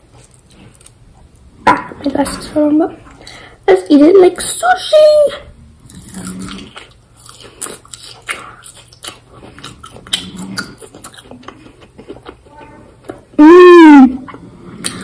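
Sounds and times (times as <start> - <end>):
crisp chewing crunches: 0.0 - 1.5, 5.8 - 13.3
closed-mouth hum: 9.3 - 15.0.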